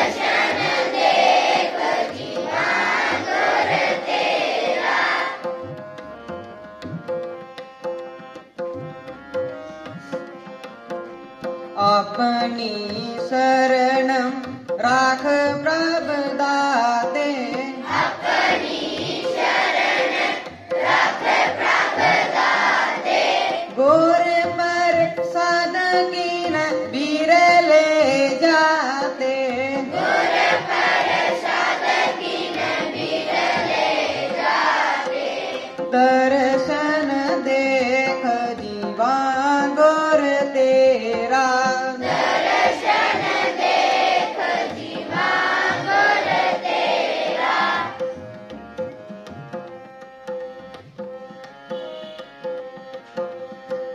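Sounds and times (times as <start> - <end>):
children singing a hymn: 0.0 - 5.5, 17.8 - 23.7, 29.9 - 35.8, 42.1 - 48.1
harmonium: 0.0 - 53.9
tabla: 0.0 - 53.9.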